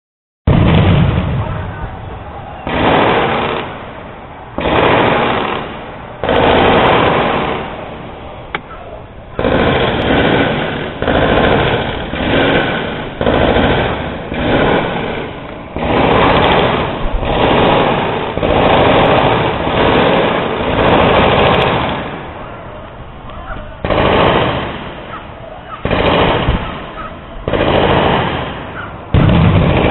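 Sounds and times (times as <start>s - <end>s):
machine-gun fire bursts: 2.7s - 3.9s, 4.6s - 8.0s, 9.4s - 22.3s, 23.8s - 25.2s, 25.8s - 29.9s.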